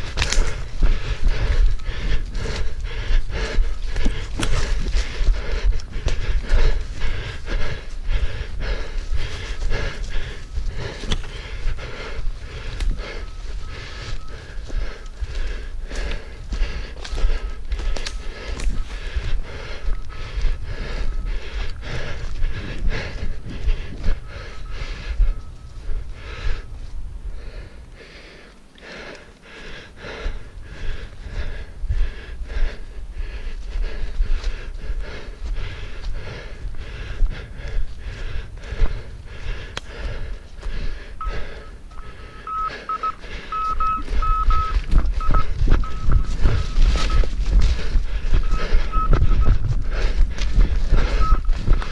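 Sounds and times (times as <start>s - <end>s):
panting breath: 0.0s - 51.9s
receiver tone beeping: 41.3s - 47.3s, 48.4s - 49.6s, 51.2s - 51.5s
runner's footfalls: 44.0s - 51.9s.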